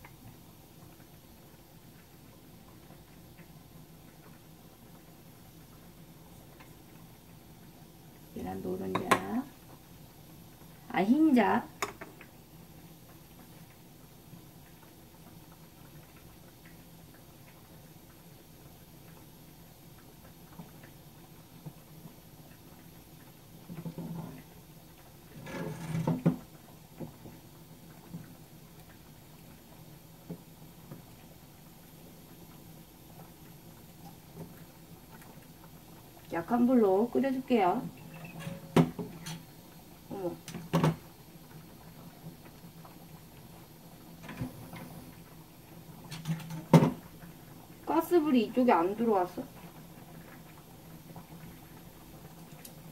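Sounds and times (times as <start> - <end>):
faint steady hum: 0.0 - 52.9
clatter at stove: 11.7 - 12.3, 23.6 - 29.0, 38.2 - 39.6, 46.0 - 47.2.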